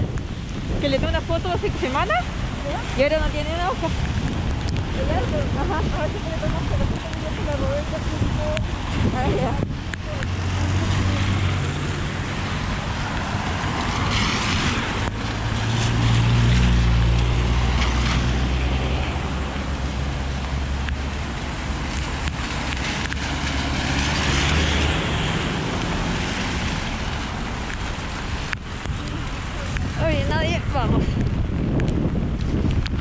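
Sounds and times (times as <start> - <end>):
deep rumble: 0.0 - 33.0
heavy rain: 0.0 - 33.0
wind buffeting microphone: 0.0 - 33.0
car tyres hissing on wet road: 0.2 - 30.3.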